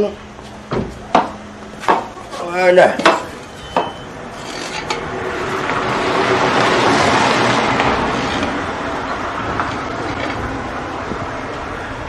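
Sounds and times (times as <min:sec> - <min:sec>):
motor vehicle passing: 0:03.2 - 0:12.0.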